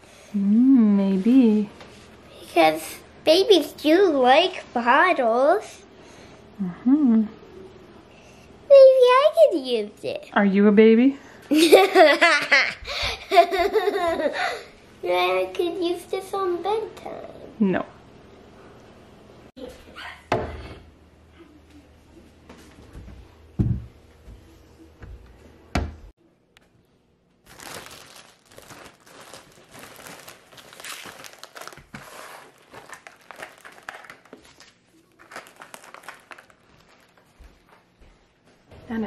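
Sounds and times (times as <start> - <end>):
plastic bags crinkling: 27.4 - 37.4.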